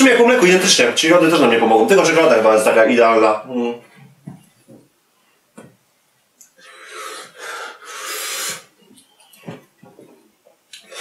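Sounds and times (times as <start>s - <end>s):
heavy breathing through mouth: 6.6s - 8.9s.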